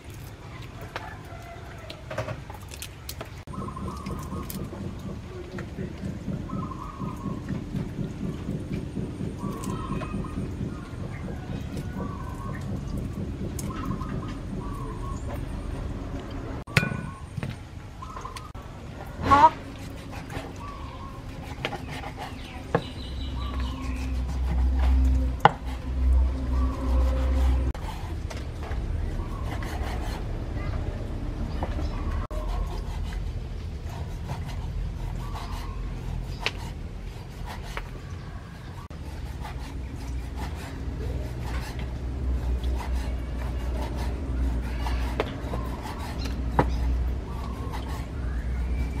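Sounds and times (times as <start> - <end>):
low rumble: 3.5 - 21.4, 22.0 - 36.2.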